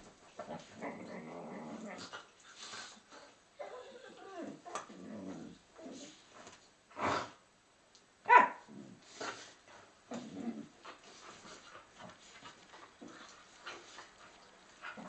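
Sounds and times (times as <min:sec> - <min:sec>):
dogs growling: 0:00.4 - 0:02.9, 0:03.6 - 0:06.2, 0:08.7 - 0:15.0
dogs barking: 0:08.3 - 0:08.6.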